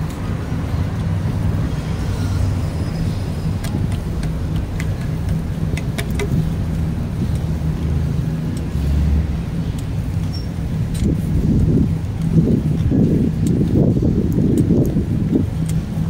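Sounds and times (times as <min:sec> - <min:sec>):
bicycle rumbling on concrete: 0:00.0 - 0:16.0
street traffic passing: 0:00.0 - 0:16.0
sharp clicks: 0:03.4 - 0:16.0.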